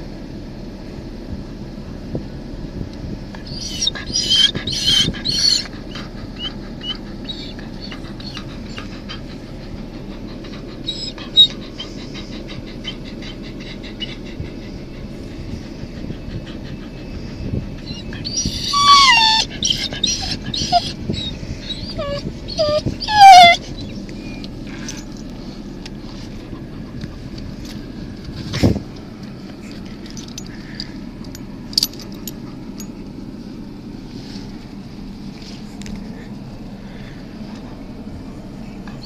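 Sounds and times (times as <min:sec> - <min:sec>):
steady low rumble: 0:00.0 - 0:39.0
dog whining and yipping: 0:03.4 - 0:25.6.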